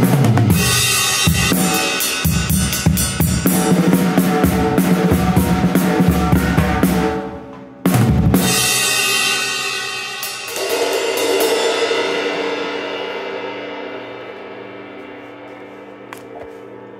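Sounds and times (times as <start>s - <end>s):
drum kit playing: 0.0s - 16.9s
cymbals and drums closing hit: 5.1s - 12.9s.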